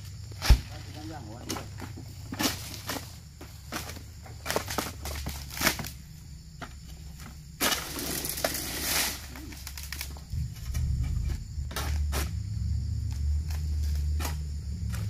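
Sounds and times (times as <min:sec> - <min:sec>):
palm fronds rustling: 0:06.8 - 0:12.4
low rumble: 0:09.7 - 0:15.0.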